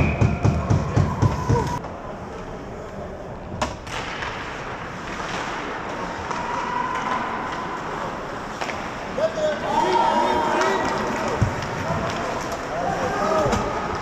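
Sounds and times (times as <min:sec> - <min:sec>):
arena noise: 0:00.0 - 0:14.0
sharp crack: 0:03.6 - 0:07.7.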